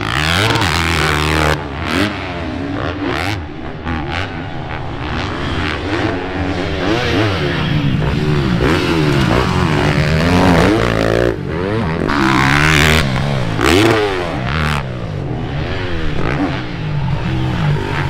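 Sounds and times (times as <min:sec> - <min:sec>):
motocross bike engines revving: 0:00.0 - 0:18.0.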